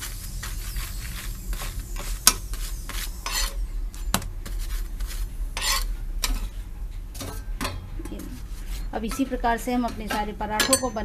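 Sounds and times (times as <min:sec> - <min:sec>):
metal spatula scraping a pan: 0:00.0 - 0:06.6, 0:08.2 - 0:11.0
flatbread sizzling in oil: 0:00.0 - 0:07.6.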